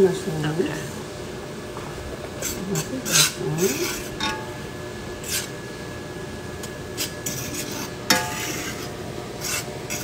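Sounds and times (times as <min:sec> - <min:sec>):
spoon scraping skillet: 0:06.9 - 0:10.0.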